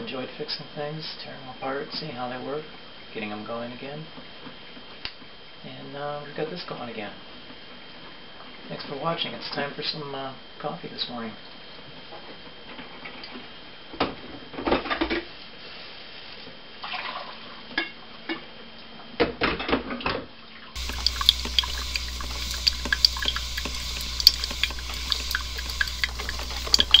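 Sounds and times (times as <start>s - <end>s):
coffee pouring into mug: 20.8s - 27.0s
crackling ticks: 20.8s - 27.0s
steady low hum: 20.8s - 27.0s.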